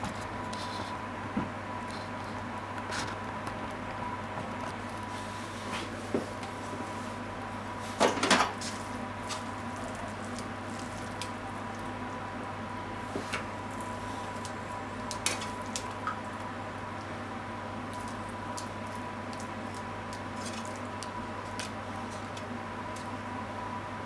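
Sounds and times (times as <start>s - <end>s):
steady low hum: 0.0s - 24.0s
pan and utensils clattering: 8.0s - 8.6s.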